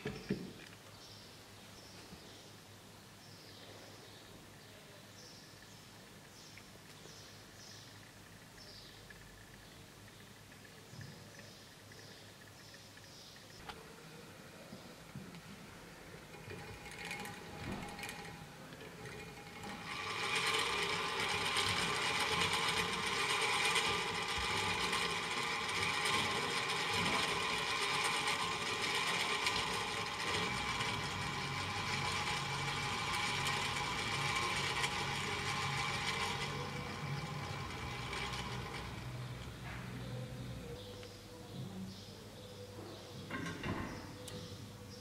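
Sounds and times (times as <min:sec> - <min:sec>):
clockwork gears whirring: 0:15.6 - 0:40.6
crank winding clicks: 0:16.2 - 0:39.7.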